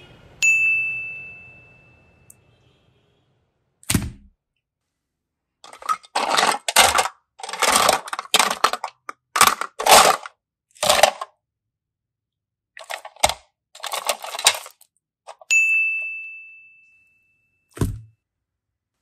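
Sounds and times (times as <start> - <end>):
plastic containers clattering: 5.6 - 11.3, 12.8 - 15.4.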